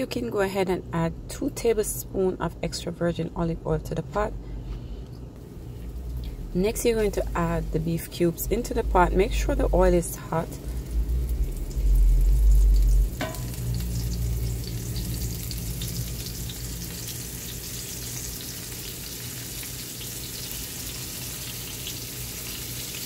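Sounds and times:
low rumble: 0:05.9 - 0:17.4
meat sizzling in oil: 0:10.4 - 0:23.0.

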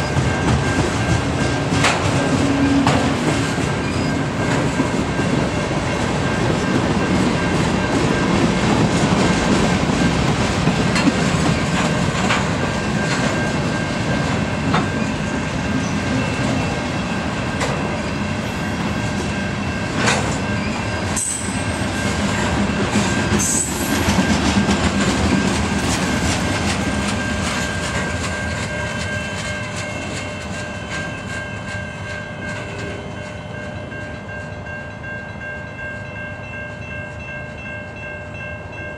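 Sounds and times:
freight train rumbling past: 0:00.0 - 0:38.9.

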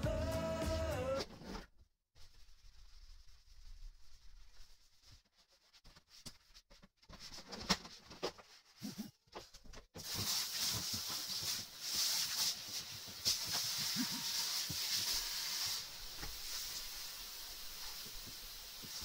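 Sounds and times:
sponge rubbing on a wall: 0:02.2 - 0:06.7, 0:10.0 - 0:19.0
shower head spraying water: 0:10.0 - 0:19.0.

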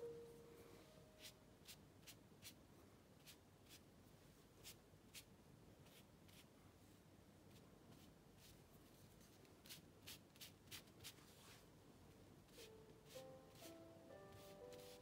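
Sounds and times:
ink brush swishing on paper: 0:14.3 - 0:15.0.

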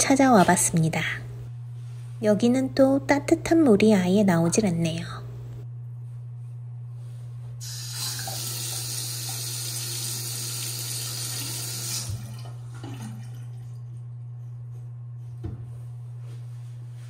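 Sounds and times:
water running into metal sink: 0:07.6 - 0:13.5.

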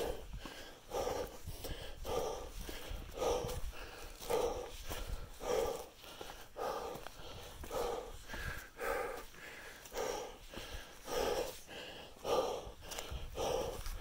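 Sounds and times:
heavy rhythmic breathing: 0:00.0 - 0:14.0
faint footfalls: 0:01.5 - 0:11.6.

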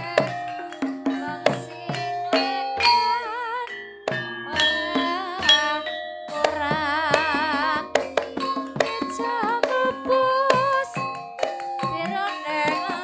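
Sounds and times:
gamelan music: 0:00.0 - 0:13.0
hand drum strokes: 0:04.0 - 0:13.0.

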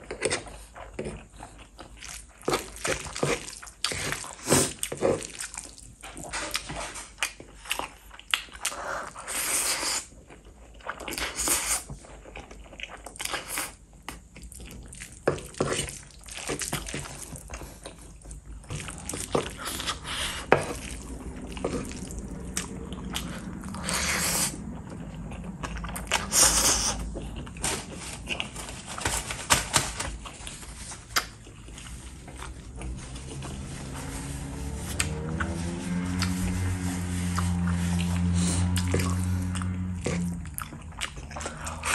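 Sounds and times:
person chewing noodles: 0:00.0 - 0:29.0, 0:30.2 - 0:41.9
slurping noodles: 0:18.0 - 0:24.8, 0:26.0 - 0:27.2.

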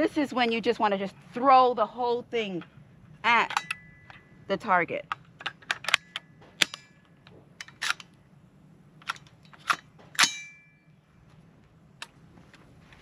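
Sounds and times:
rifle action metallic clicks: 0:05.1 - 0:08.2.

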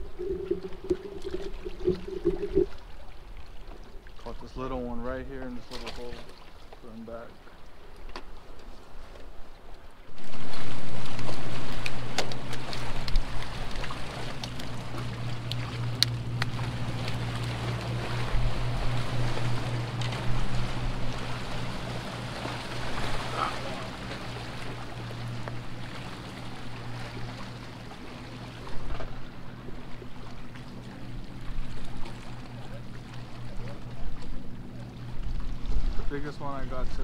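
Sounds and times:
wind on microphone: 0:00.0 - 0:02.8
low engine drone: 0:00.0 - 0:05.4, 0:10.1 - 0:37.0.

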